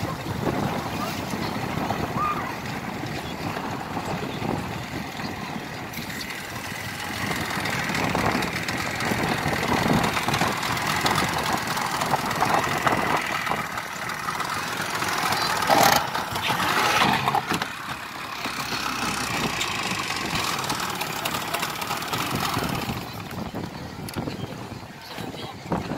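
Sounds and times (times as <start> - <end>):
wind noise on microphone: 0.0 - 17.8, 19.2 - 25.9
motorboat engine running: 0.0 - 25.9.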